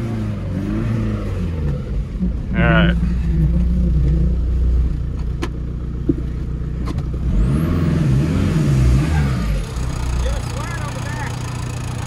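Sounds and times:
diesel car engine from cabin: 0.0s - 12.0s.

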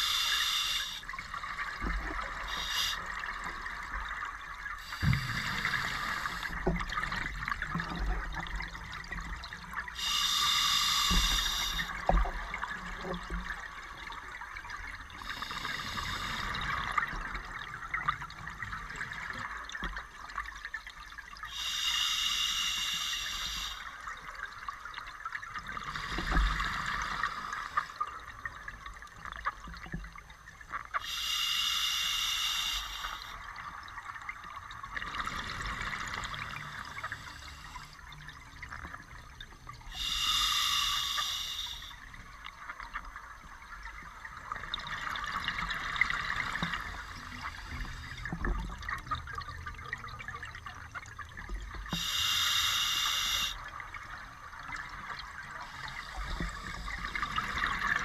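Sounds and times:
diver breathing through regulator: 0.0s - 1.0s, 2.4s - 3.0s, 4.8s - 6.6s, 10.0s - 12.0s, 15.2s - 17.0s, 21.5s - 23.9s, 25.8s - 28.0s, 31.0s - 33.4s, 39.9s - 42.0s, 51.9s - 53.6s.

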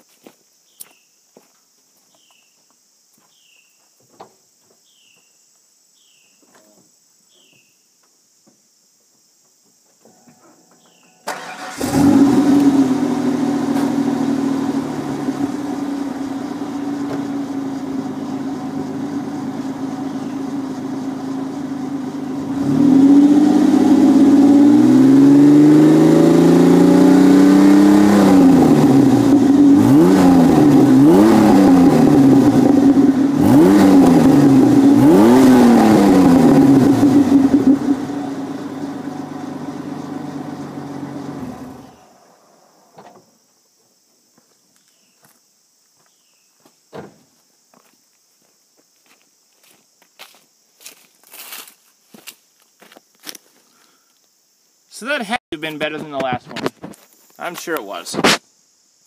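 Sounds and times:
car engine starting: 11.2s - 43.2s
car engine idling: 11.3s - 24.9s, 28.0s - 43.0s
car engine revving: 11.3s - 42.4s.

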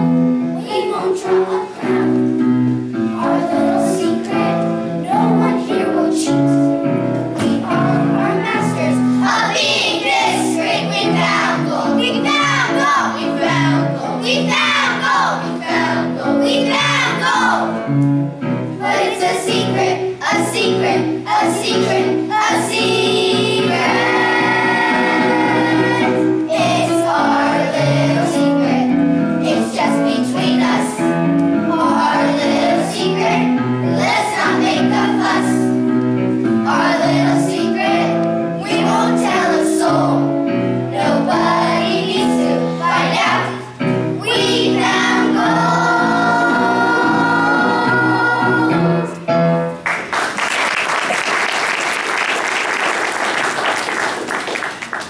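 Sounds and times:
instrumental accompaniment: 0.0s - 50.3s
children's choir singing: 0.0s - 55.0s
audience applause: 49.8s - 55.0s.

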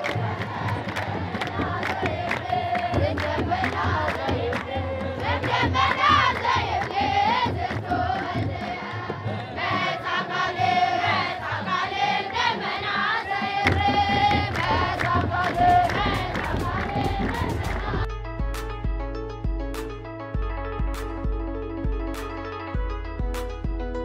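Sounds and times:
hand-clapping: 0.0s - 9.9s, 13.6s - 18.1s
choir chanting a hymn: 0.0s - 18.1s
drum strokes: 0.0s - 19.0s.

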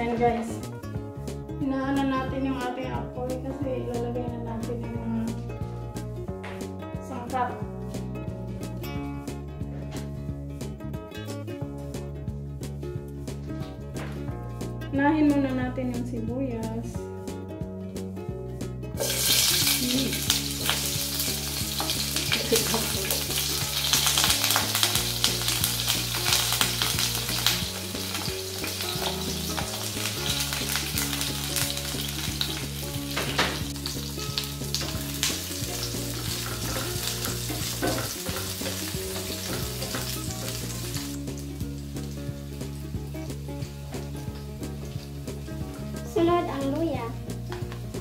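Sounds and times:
onion sizzling in frying pan: 18.9s - 48.0s
spatula scraping and tapping: 36.2s - 40.4s.

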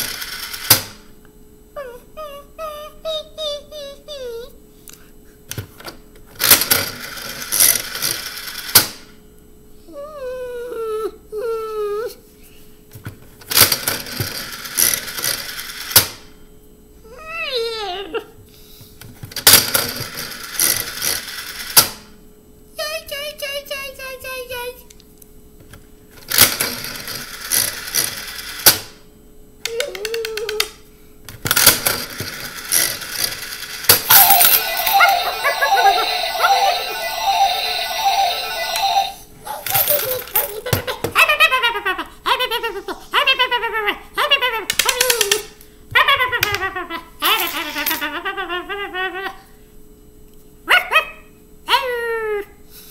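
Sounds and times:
toy slot machine whirring and clicking: 0.0s - 0.8s, 6.4s - 9.0s, 13.5s - 16.1s, 19.4s - 22.0s, 26.3s - 28.8s, 31.6s - 40.7s
high puppy-like whimpers: 9.9s - 12.2s
gliding tone: 34.1s - 39.3s.

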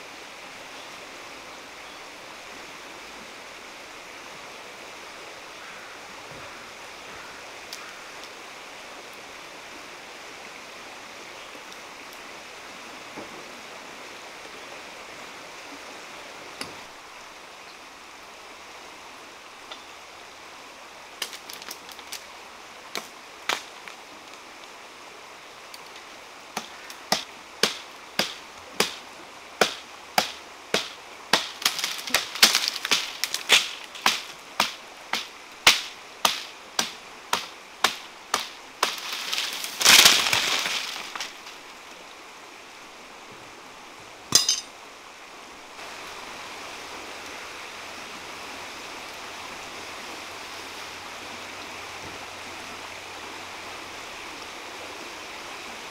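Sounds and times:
steady hiss: 0.0s - 55.9s
wood snapping: 21.2s - 22.2s, 23.0s - 24.0s, 29.6s - 41.6s.

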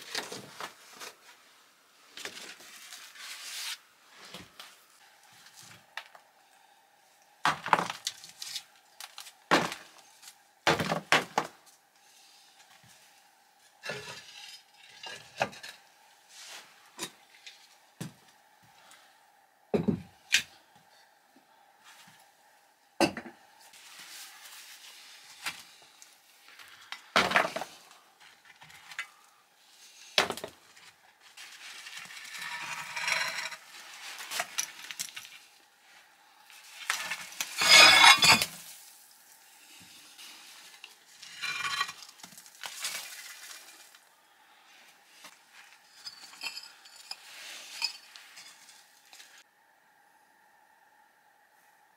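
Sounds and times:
cast-iron hob rings clanking: 37.6s - 38.4s.

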